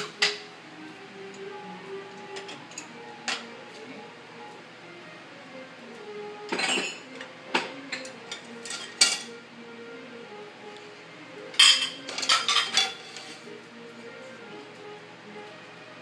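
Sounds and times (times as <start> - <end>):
dishes clattering in wire rack: 6.5 - 9.3, 11.6 - 13.4.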